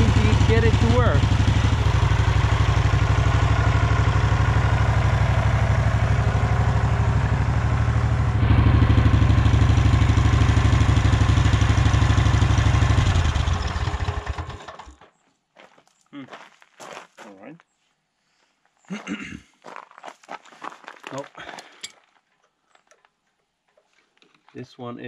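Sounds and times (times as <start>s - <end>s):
mower engine idling: 0.0s - 15.1s.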